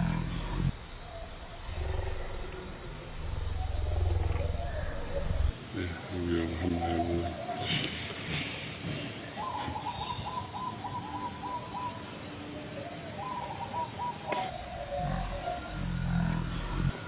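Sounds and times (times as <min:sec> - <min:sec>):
animal pulsing call: 0:00.0 - 0:05.6, 0:14.4 - 0:17.0.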